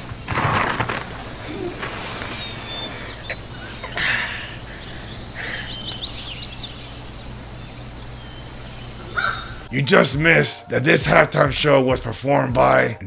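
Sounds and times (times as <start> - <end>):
rustling noise: 0.0 - 2.8
small birds chirping: 0.0 - 10.0.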